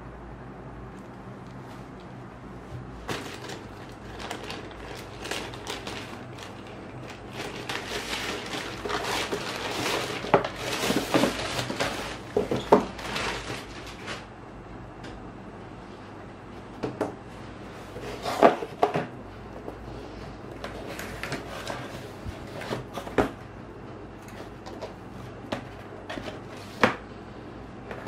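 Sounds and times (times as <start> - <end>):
plastic bag crinkling: 3.0 - 14.3.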